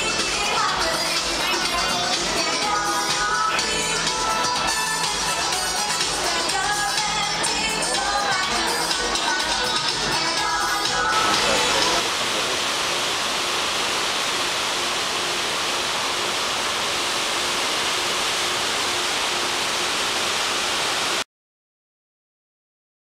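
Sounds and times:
churning wake water rushing: 7.9s - 21.2s.

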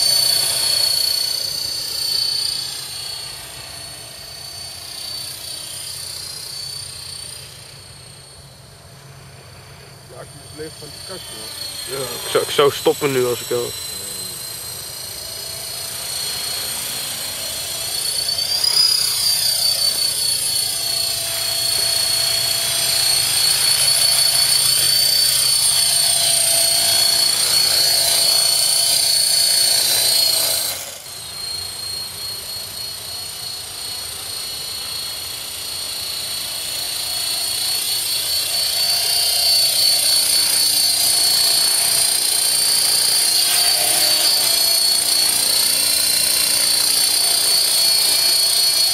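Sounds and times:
rc helicopter whine: 0.0s - 48.9s.

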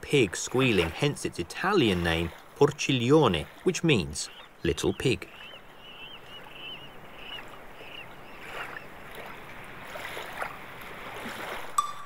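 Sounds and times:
water rails squealing: 0.4s - 9.5s
small birds chirping: 3.5s - 9.4s
music: 11.8s - 12.0s.

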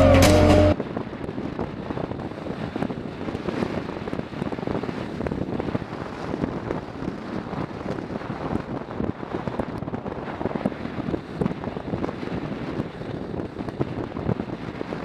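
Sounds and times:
motorcycle engine: 0.0s - 0.8s
road noise: 0.0s - 14.5s
wind buffeting microphone: 0.0s - 15.0s.

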